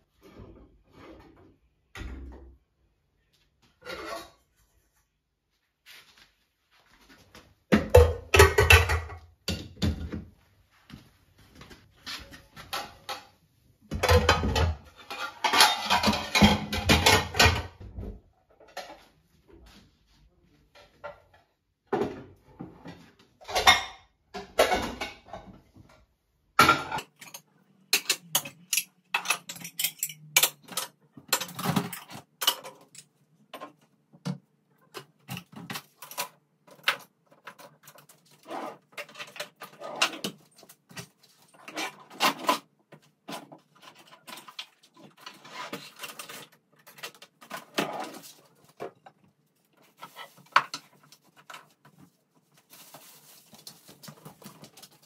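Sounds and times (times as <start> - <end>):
cupboard doors and items clattering: 0.0 - 2.8, 6.7 - 55.0
rustling: 43.7 - 55.0.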